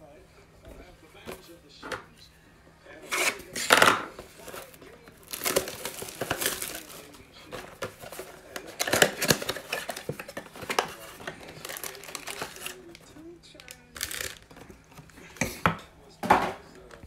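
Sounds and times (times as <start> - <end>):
cardboard rustling: 3.0 - 15.3
wrapper crinkling: 4.4 - 15.1.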